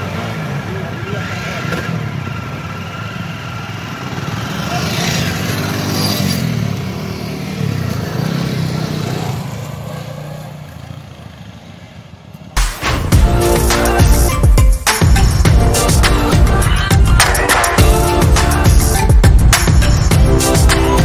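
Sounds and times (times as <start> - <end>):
motorcycle engines revving: 0.0 - 12.6.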